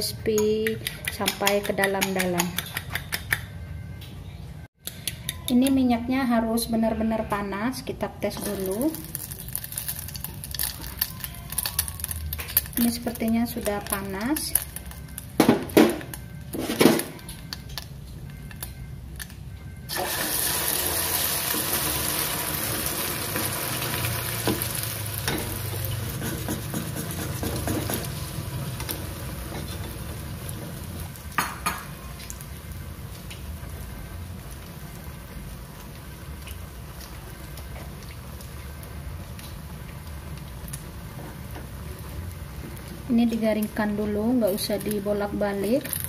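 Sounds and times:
egg sizzling in hot oil: 0:08.4 - 0:15.3, 0:19.9 - 0:46.0.

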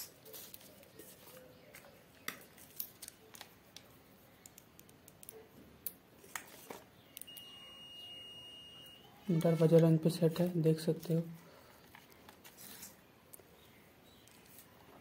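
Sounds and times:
multimeter continuity beep: 0:07.2 - 0:09.2.

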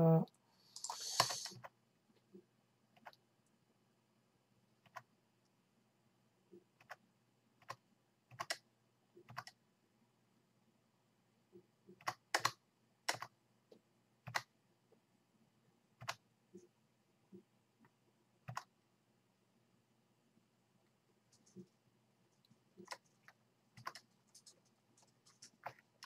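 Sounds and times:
faint low hum: 0:00.0 - 0:26.0
computer keys clicking: 0:00.8 - 0:01.7, 0:04.8 - 0:05.1, 0:06.8 - 0:07.0, 0:07.6 - 0:08.6, 0:09.2 - 0:09.6, 0:11.9 - 0:13.4, 0:14.2 - 0:14.5, 0:16.0 - 0:16.2, 0:18.5 - 0:18.7, 0:21.3 - 0:21.8, 0:22.4 - 0:26.0.

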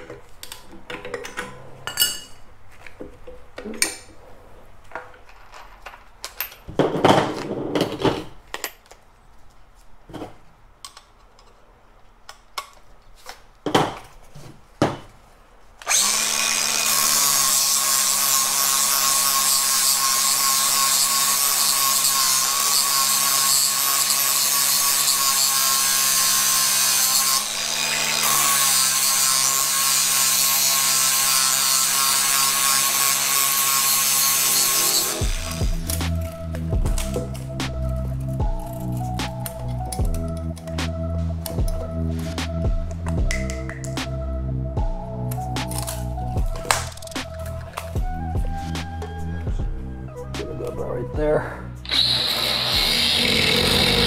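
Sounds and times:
metal parts and tools clinking: 0:04.9 - 0:09.0
angle grinder grinding metal: 0:15.8 - 0:40.7, 0:51.8 - 0:54.0.

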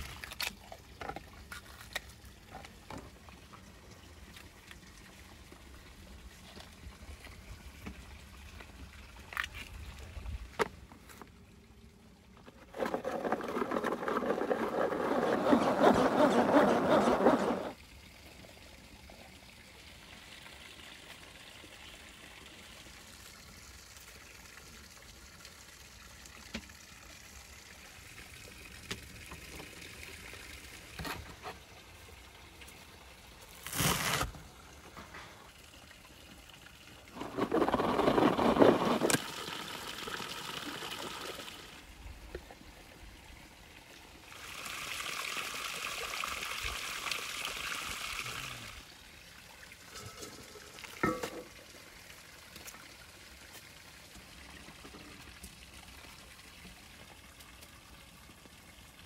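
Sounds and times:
hand food chopper whirring: 0:12.8 - 0:17.7.

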